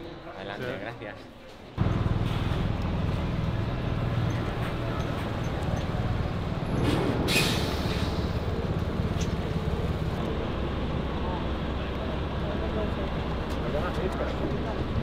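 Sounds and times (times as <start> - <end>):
diesel engine rumbling: 1.8 - 15.0
compressed air hiss: 6.8 - 8.6.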